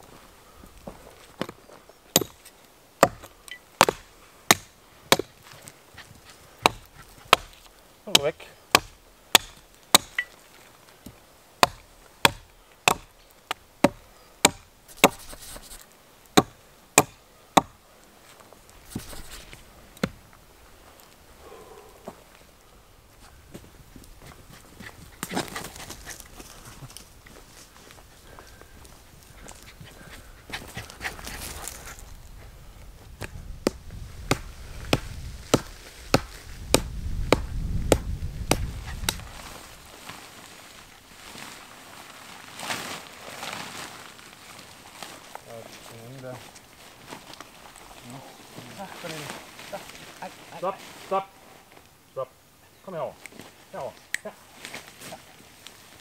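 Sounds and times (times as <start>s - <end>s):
hatchet chopping wood: 2.1s - 5.6s, 6.6s - 10.4s, 11.6s - 15.4s, 16.4s - 17.8s, 20.0s - 20.2s, 33.6s - 39.2s.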